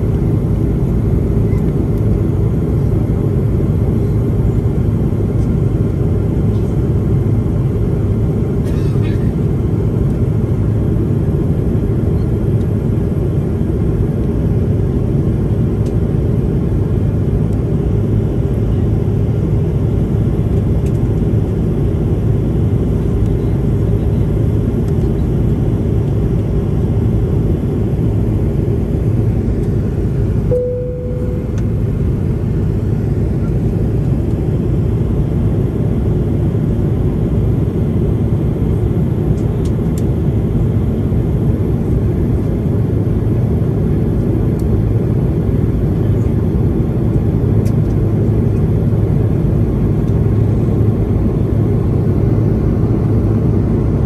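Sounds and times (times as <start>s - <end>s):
airliner cabin engine rumble: 0.0s - 54.0s
short tone: 30.5s - 32.1s.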